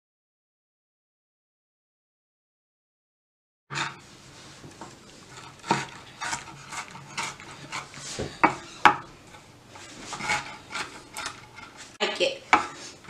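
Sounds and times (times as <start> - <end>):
knife chopping on wooden board: 7.2 - 9.1.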